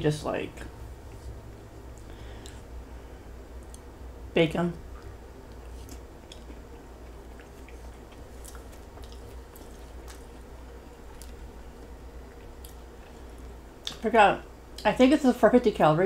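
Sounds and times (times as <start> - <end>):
person chewing: 5.4 - 14.0.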